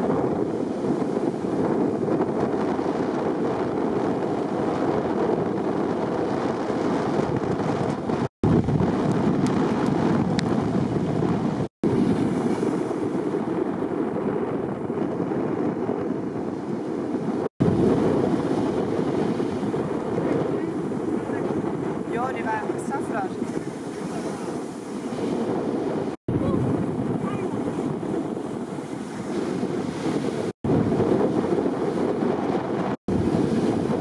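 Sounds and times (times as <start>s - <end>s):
breaking surf: 0.0s - 34.0s
wind buffeting microphone: 0.0s - 34.0s.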